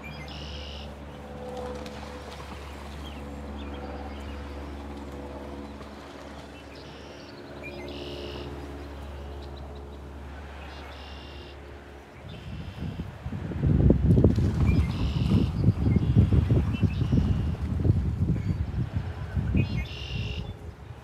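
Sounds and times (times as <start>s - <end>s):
songbirds trilling: 0.0s - 1.3s, 2.6s - 13.1s, 14.7s - 17.6s, 19.5s - 20.6s
steady low hum: 0.0s - 21.0s.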